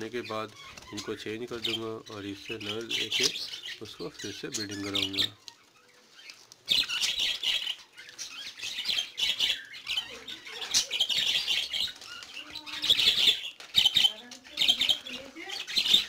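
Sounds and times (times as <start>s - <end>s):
budgerigars chattering and chirping: 0.0s - 16.0s.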